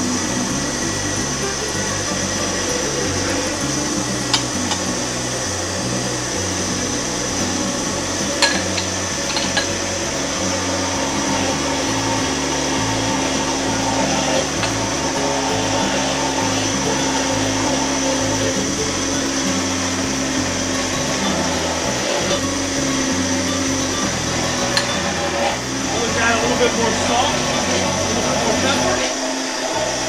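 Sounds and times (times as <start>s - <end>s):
background music: 0.0s - 30.0s
blender running: 0.0s - 30.0s.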